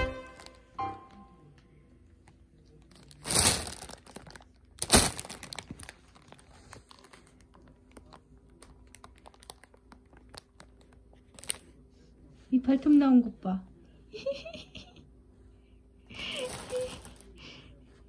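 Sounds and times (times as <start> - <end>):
plastic bag rustling: 2.9 - 8.2, 16.2 - 17.4.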